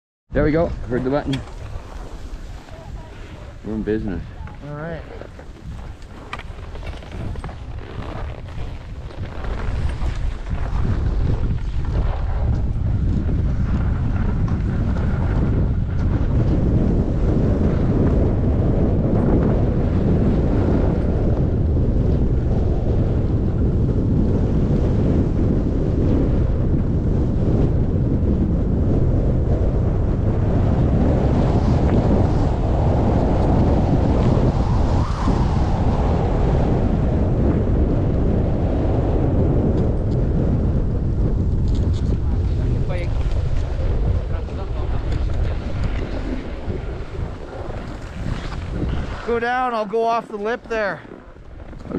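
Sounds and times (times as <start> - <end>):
wind buffeting microphone: 0.3 - 51.9
skis sliding on packed snow: 0.9 - 18.1, 41.6 - 51.9.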